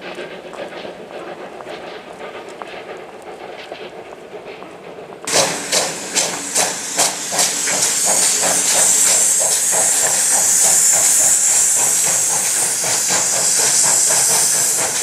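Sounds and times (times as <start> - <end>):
steam locomotive exhaust chuffs: 0.0 - 15.0
train rumble: 0.0 - 15.0
steam hiss: 5.2 - 15.0.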